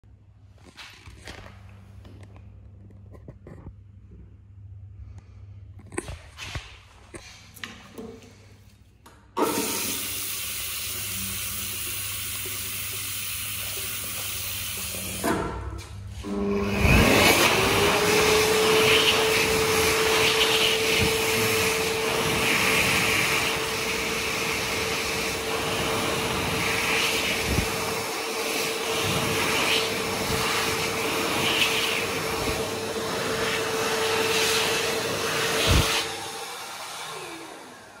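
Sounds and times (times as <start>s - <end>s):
hand dryer whining and blowing: 9.4s - 38.0s
water running from tap: 9.5s - 15.2s.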